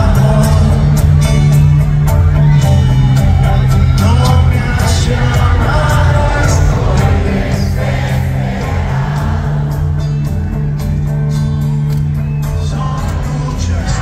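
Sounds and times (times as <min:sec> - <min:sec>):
live rock band playing: 0:00.0 - 0:14.0
lead vocal singing: 0:04.0 - 0:10.1, 0:12.6 - 0:14.0
crowd singing along: 0:04.4 - 0:10.6, 0:13.0 - 0:14.0.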